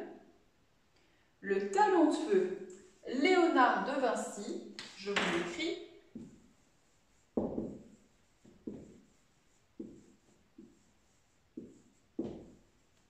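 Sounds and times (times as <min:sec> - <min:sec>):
marker knocking on whiteboard: 0:04.8 - 0:05.6, 0:07.4 - 0:08.0, 0:08.6 - 0:09.0, 0:09.8 - 0:10.8.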